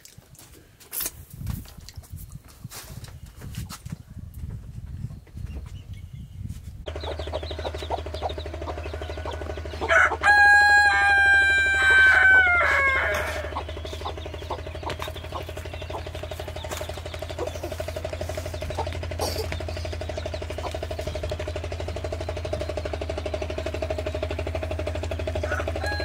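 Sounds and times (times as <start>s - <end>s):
rooster crowing: 8.8s - 13.7s, 25.4s - 26.0s.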